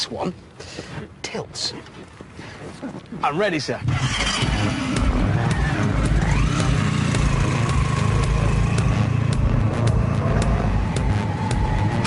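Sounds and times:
motorcycle engine revving: 0:03.8 - 0:12.0.

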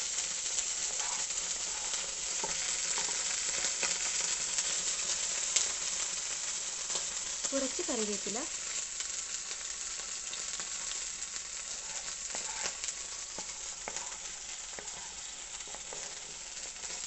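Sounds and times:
food sizzling in hot oil: 0:00.0 - 0:17.0
wooden spatula stirring: 0:00.8 - 0:03.2, 0:11.7 - 0:17.0.

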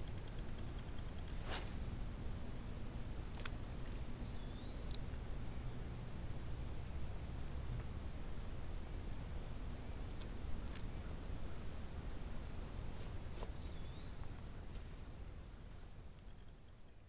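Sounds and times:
steady hiss: 0:00.0 - 0:17.0
faint bird chirps: 0:04.1 - 0:08.6, 0:10.9 - 0:17.0.

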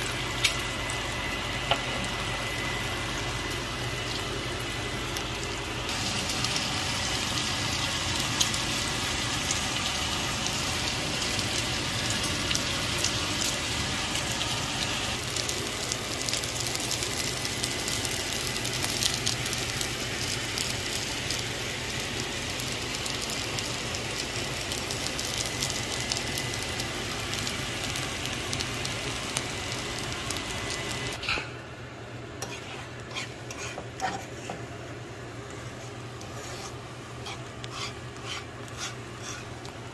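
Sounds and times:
vegetables sizzling in a frying pan: 0:00.0 - 0:31.4
fork scraping and tapping a pan: 0:32.4 - 0:34.6.

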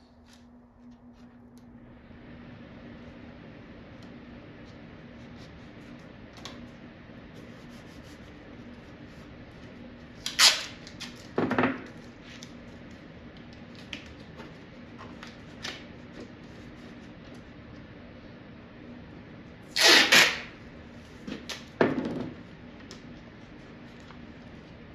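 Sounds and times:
tape ripped off roll: 0:10.2 - 0:11.2, 0:19.7 - 0:20.6.

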